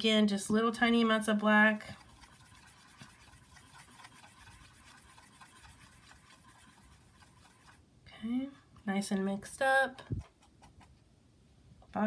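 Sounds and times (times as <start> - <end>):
paintbrush scratching on palette: 1.1 - 7.8, 8.8 - 11.0.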